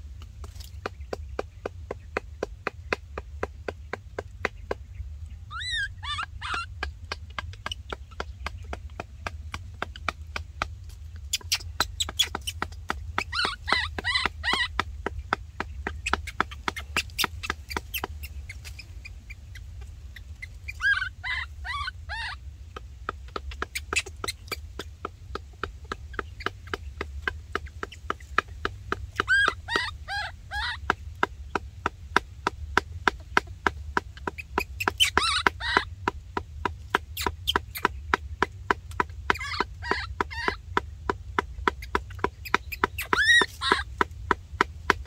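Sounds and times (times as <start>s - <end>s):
high squeaky animal calls: 5.5s - 8.3s, 11.3s - 14.9s, 15.9s - 22.5s, 23.4s - 24.9s, 29.1s - 31.0s, 34.2s - 36.0s, 39.3s - 40.8s, 41.7s - 44.0s.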